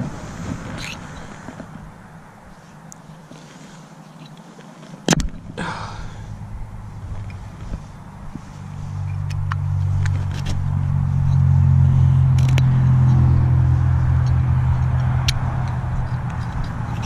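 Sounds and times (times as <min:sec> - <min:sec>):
vehicle engine droning: 0:00.0 - 0:04.6, 0:05.2 - 0:17.0.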